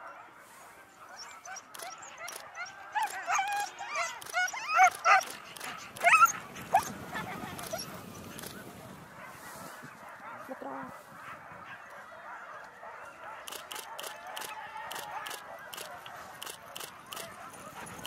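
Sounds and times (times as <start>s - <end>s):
dogs yelping and barking: 0.0s - 8.5s, 11.2s - 18.0s
dogs whining: 1.2s - 8.0s.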